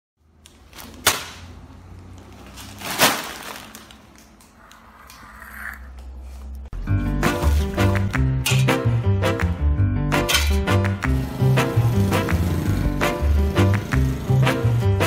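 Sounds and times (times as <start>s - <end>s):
plastic snack bags crackling: 2.0s - 4.7s.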